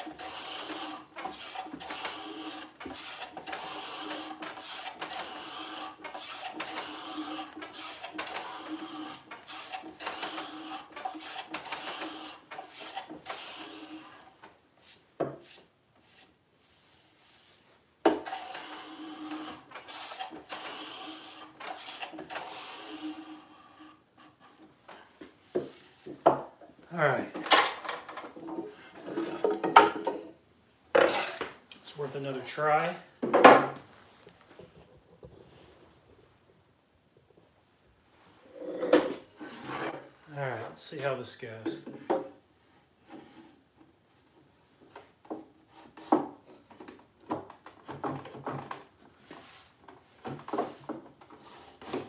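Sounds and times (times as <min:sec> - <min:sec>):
hand plane scraping wood: 0:00.0 - 0:26.5, 0:28.3 - 0:30.2, 0:31.0 - 0:31.6, 0:38.6 - 0:40.2, 0:42.7 - 0:43.6, 0:45.0 - 0:47.0, 0:49.2 - 0:52.0.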